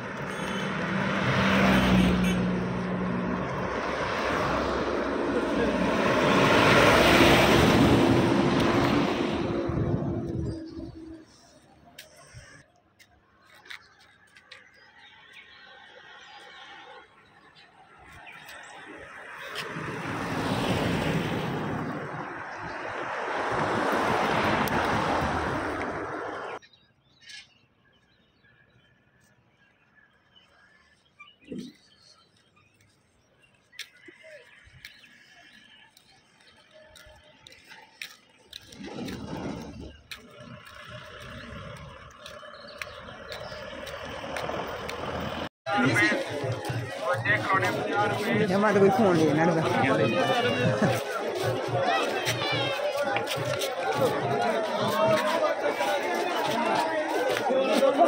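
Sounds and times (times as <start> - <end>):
cars driving past: 0.0 - 12.0, 14.9 - 26.6, 33.8 - 58.0
steady engine hum: 0.0 - 12.0, 36.4 - 58.0.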